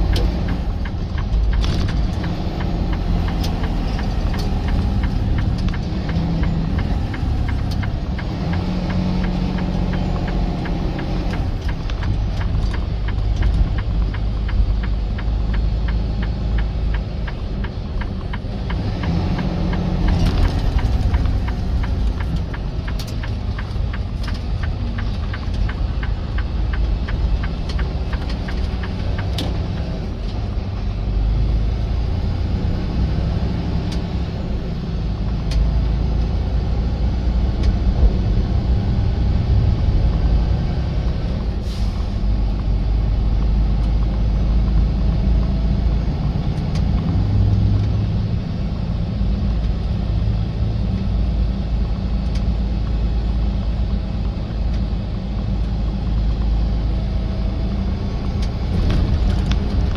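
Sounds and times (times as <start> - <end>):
diesel engine rumbling: 0.0 - 59.9
rapid ticking: 0.1 - 30.3.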